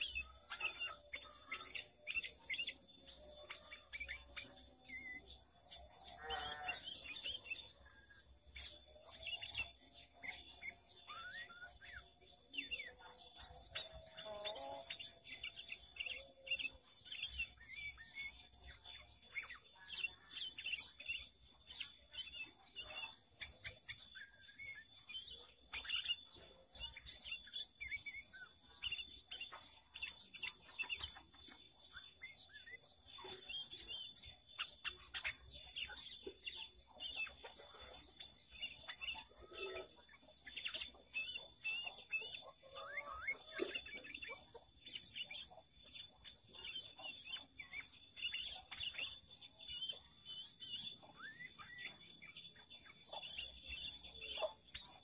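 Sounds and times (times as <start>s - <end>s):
bird chirping and whistling: 0.0s - 55.0s
faint steady high tone: 0.0s - 55.0s.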